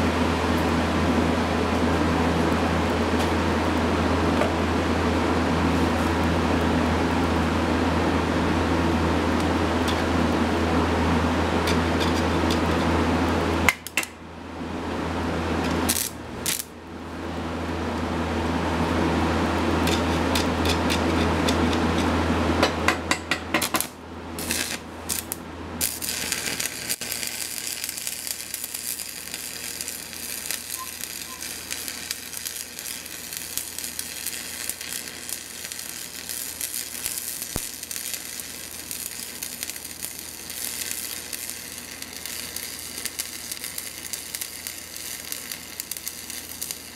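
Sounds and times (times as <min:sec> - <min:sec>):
steady humming roar: 0:00.0 - 0:46.9
electric welding arc crackling: 0:15.8 - 0:16.7, 0:19.8 - 0:21.5, 0:23.6 - 0:46.9.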